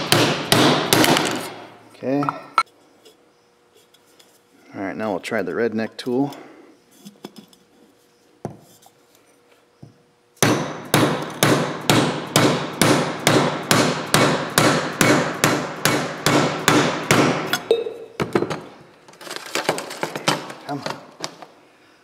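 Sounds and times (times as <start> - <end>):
hammer striking metal driver: 10.4 - 17.9.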